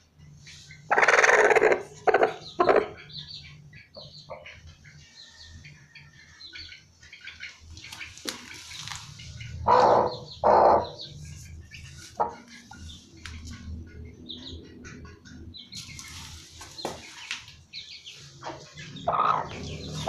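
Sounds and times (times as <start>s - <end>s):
hen giving harsh calls: 0.9s - 3.0s, 9.6s - 11.1s.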